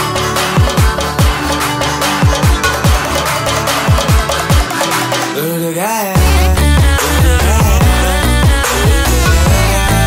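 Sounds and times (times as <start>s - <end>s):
synth and percussion: 0.0s - 5.4s, 6.2s - 10.0s
deep kick drums: 6.2s - 10.0s.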